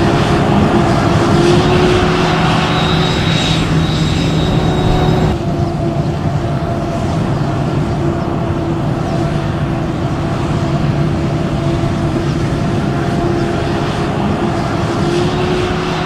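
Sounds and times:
engines humming: 0:00.0 - 0:16.0.

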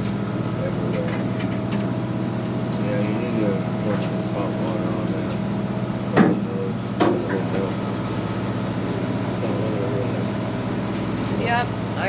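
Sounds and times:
boat engine droning: 0:00.0 - 0:12.0
sharp knocks: 0:06.2 - 0:07.4.

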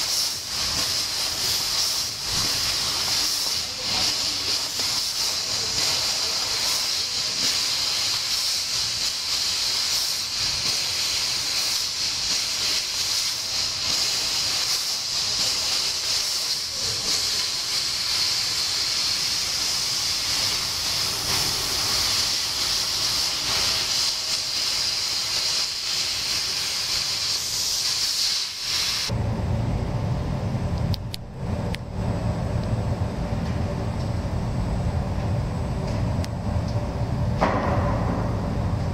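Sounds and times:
gas hissing from cutting head: 0:00.0 - 0:29.1
low machine hum: 0:29.1 - 0:38.9.

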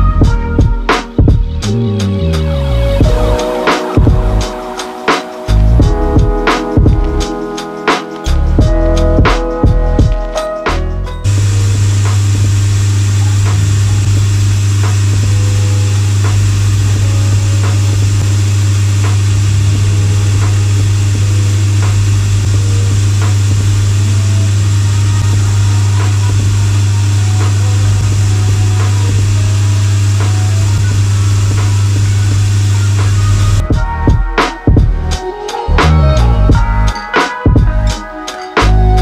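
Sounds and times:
electric motor hum: 0:02.7 - 0:07.4, 0:11.2 - 0:33.6.

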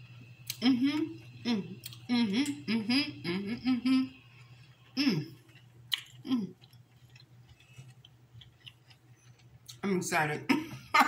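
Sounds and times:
person humming: 0:00.5 - 0:04.2, 0:05.0 - 0:05.4
person chewing: 0:01.8 - 0:02.1, 0:04.4 - 0:09.8.

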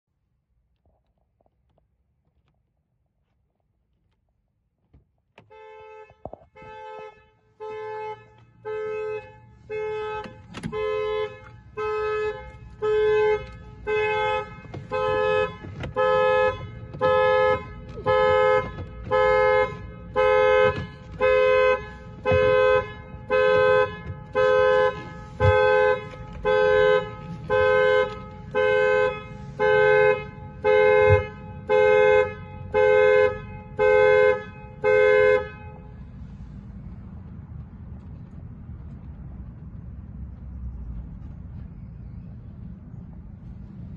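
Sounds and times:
car alarm two-tone horn blasts: 0:05.4 - 0:36.4.

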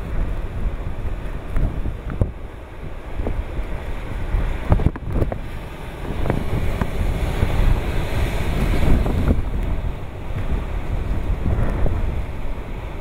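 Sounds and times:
surf crashing against rocks: 0:00.0 - 0:13.0
wind buffeting microphone: 0:00.0 - 0:13.0.

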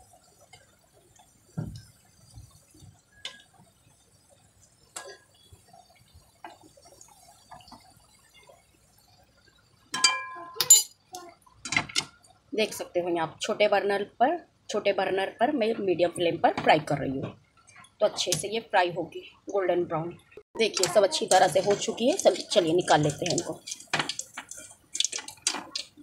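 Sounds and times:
oil bubbling: 0:00.0 - 0:13.9, 0:20.1 - 0:26.0
spoon clinking on pan: 0:10.0 - 0:10.9.

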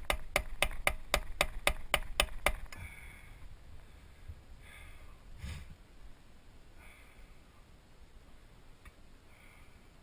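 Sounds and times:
rubber mallet tapping wooden block: 0:00.0 - 0:02.6.

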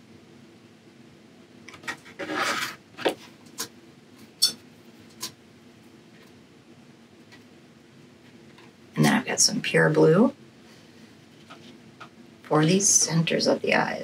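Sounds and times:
paper scraping on tabletop: 0:01.8 - 0:03.2.

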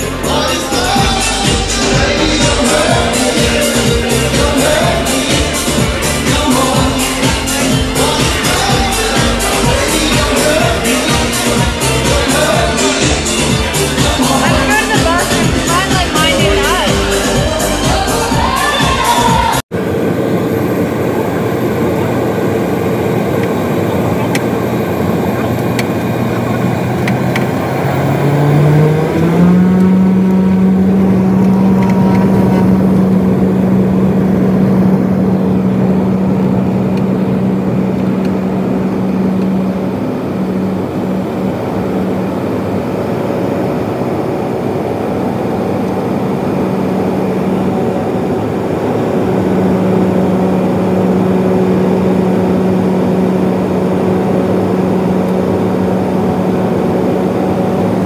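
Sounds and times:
light aircraft engine and propeller: 0:19.7 - 0:58.0.

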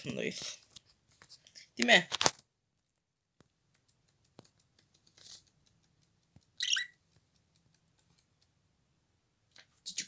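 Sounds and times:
budgerigar chirp: 0:06.6 - 0:07.0.

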